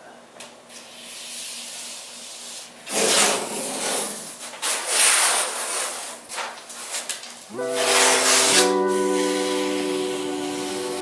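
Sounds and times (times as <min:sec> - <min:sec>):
tape tearing off roll: 0:02.9 - 0:09.8.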